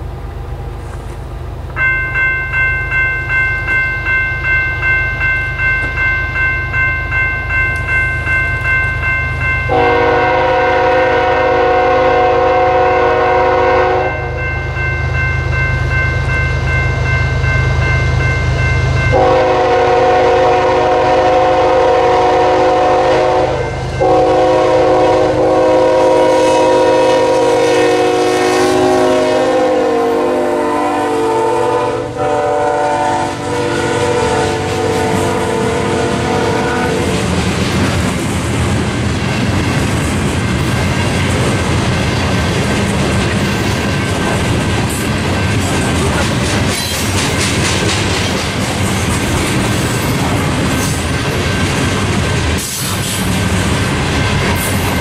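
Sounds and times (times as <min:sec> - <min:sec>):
low rumble of train: 0:00.0 - 0:55.0
crossing bell ringing: 0:01.7 - 0:37.6, 0:40.7 - 0:51.3, 0:54.0 - 0:55.0
locomotive air horn blasts: 0:09.7 - 0:14.4, 0:19.1 - 0:37.2.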